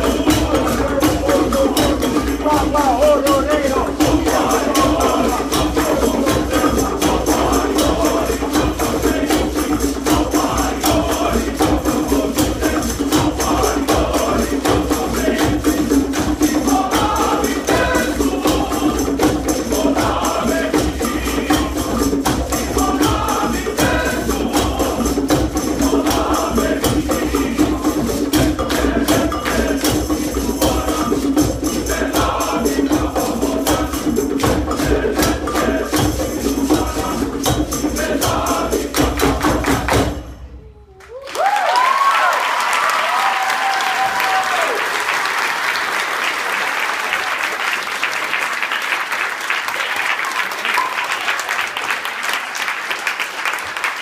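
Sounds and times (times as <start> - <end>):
men's choir singing: 0.0 - 40.3
people clapping a fast beat: 0.0 - 54.0.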